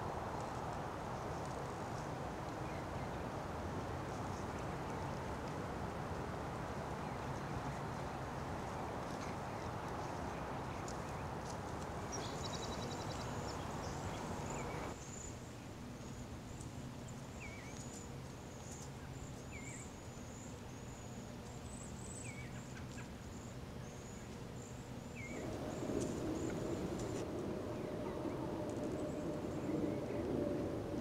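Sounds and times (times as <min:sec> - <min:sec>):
low outdoor rumble: 0:00.0 - 0:31.0
songbird trill: 0:07.0 - 0:31.0.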